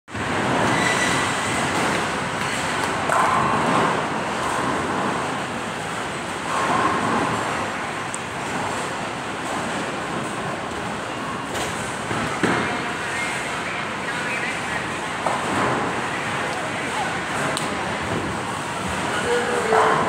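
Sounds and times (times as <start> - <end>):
bowling balls rolling down lanes: 0.2 - 13.4.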